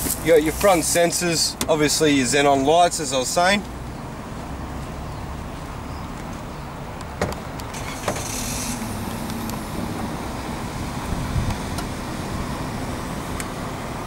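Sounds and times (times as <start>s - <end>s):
road traffic rumble: 0.0s - 14.0s
brief hiss: 7.8s - 8.9s.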